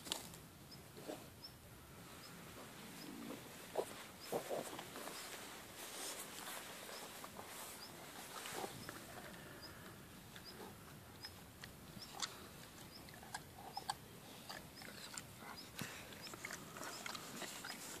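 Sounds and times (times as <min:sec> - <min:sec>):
dog snuffling: 0:02.9 - 0:09.8.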